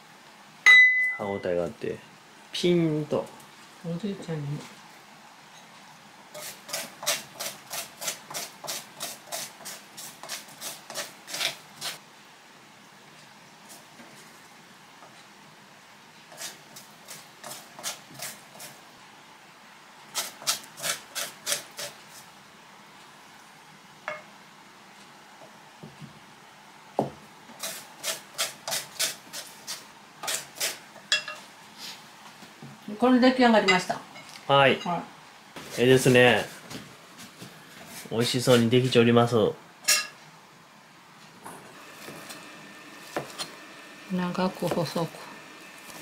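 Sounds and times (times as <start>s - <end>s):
utensil scraping on wood: 6.3s - 12.0s, 16.3s - 18.8s, 20.1s - 22.3s, 27.6s - 30.8s.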